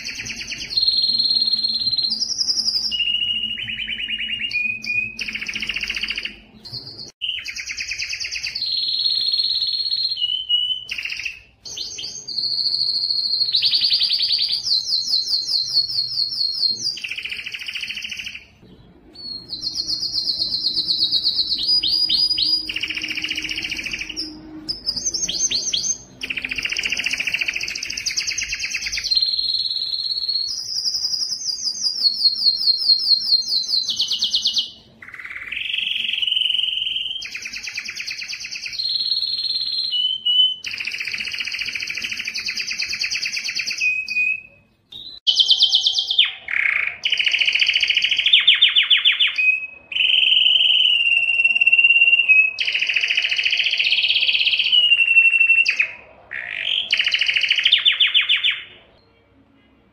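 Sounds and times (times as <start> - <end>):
canary singing fast trills: 0.0 - 59.0.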